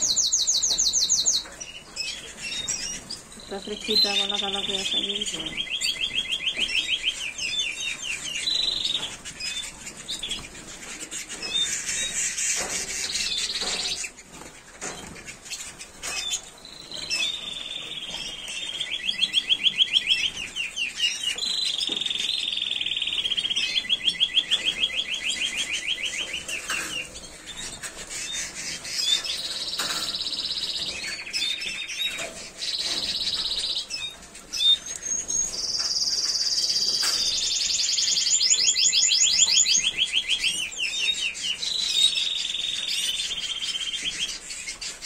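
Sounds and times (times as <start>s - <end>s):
canaries singing fast trills: 0.0s - 45.0s.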